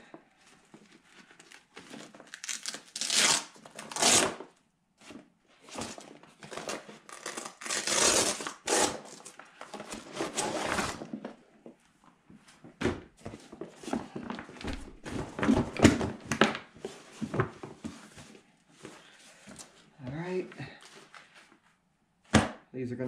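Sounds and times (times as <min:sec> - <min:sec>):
packaging ripping: 0:01.4 - 0:04.5, 0:06.4 - 0:11.2.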